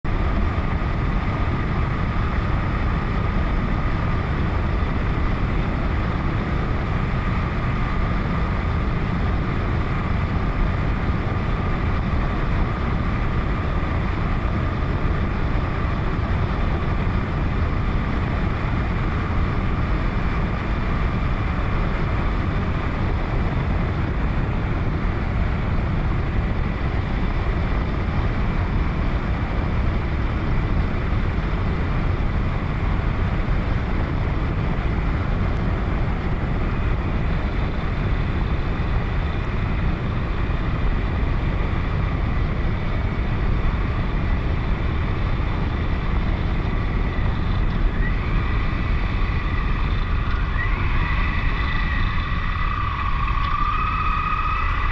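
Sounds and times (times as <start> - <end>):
wind rushing over microphone: 0.0 - 54.9.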